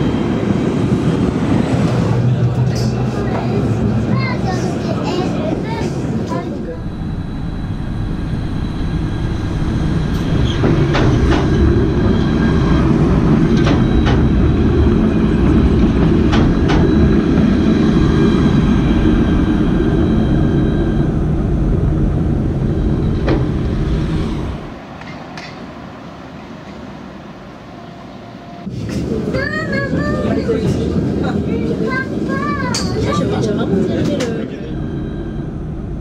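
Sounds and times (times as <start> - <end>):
traffic background: 0.0 - 36.0
tram wheels rumbling on rails: 0.0 - 36.0
high whining tones: 6.2 - 24.8, 33.4 - 36.0.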